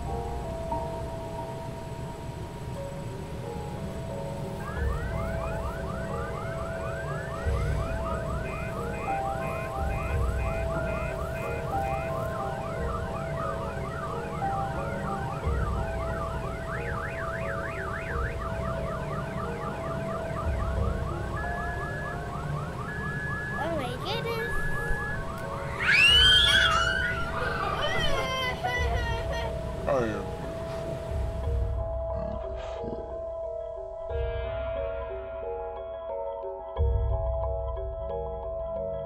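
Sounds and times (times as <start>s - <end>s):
sirens yelping: 1.6s - 31.6s.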